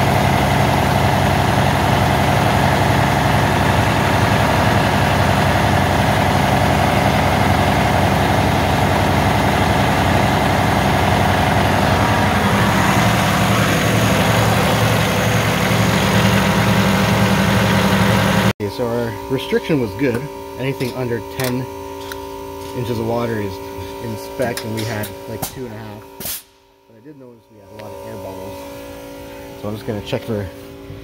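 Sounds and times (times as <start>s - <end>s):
diesel engine idling: 0.0s - 18.5s.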